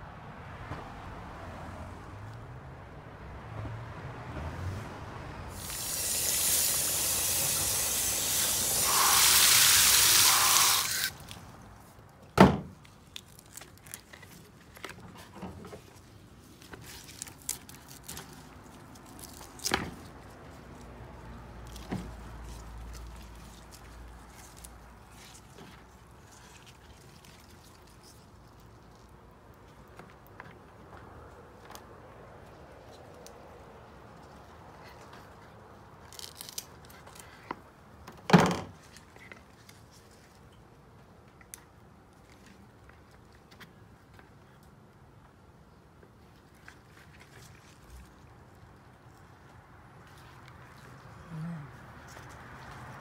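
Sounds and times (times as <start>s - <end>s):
spraying water hiss: 5.5s - 11.2s
clicks of plant pot and bark chips: 36.0s - 37.6s.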